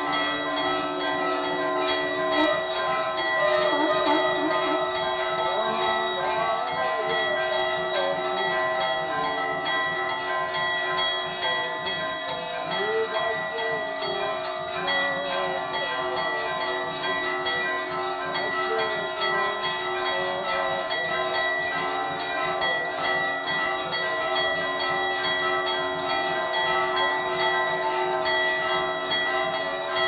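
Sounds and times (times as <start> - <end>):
metal temple bell ringing: 0.0 - 30.0
wavering tone: 1.6 - 9.4.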